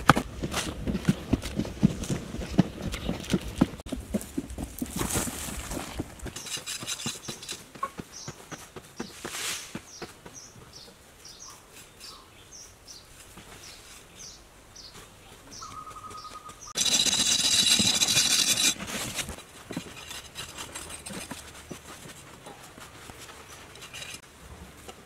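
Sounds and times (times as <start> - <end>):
bird chirping: 9.9 - 17.0.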